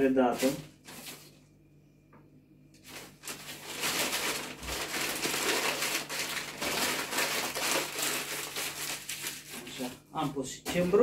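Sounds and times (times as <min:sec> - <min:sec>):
dried herbs crumbled by hand: 0:02.8 - 0:09.9.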